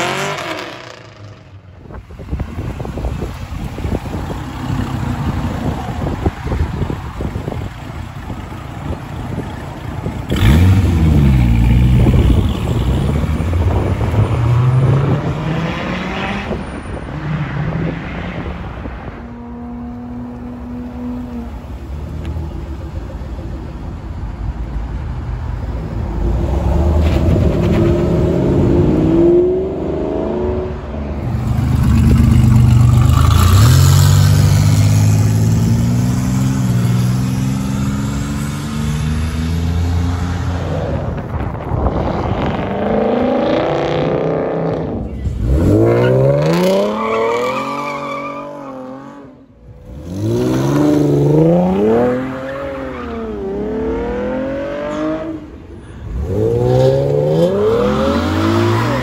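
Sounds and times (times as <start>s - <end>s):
cars accelerating engines revving: 0.0s - 1.4s, 10.2s - 16.6s, 26.2s - 59.0s.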